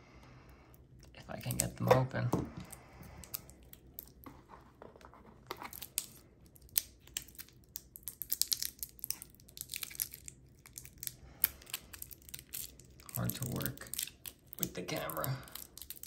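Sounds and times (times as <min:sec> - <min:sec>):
plastic packaging crinkling and tearing: 0:05.3 - 0:16.0.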